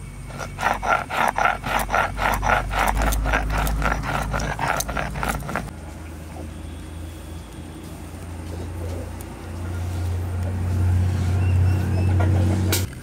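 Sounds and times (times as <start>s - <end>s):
stone roller grinding paste: 0.2s - 5.7s.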